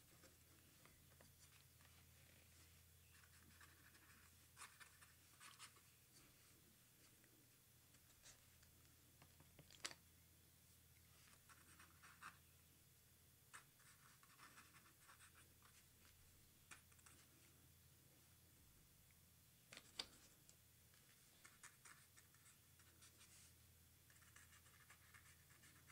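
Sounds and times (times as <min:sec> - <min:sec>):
pen scratching on paper: 0:24.1 - 0:25.9.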